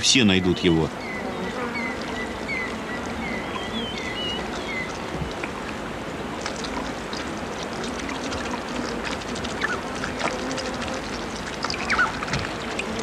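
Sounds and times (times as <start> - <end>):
constant even hiss: 0.0 - 13.0.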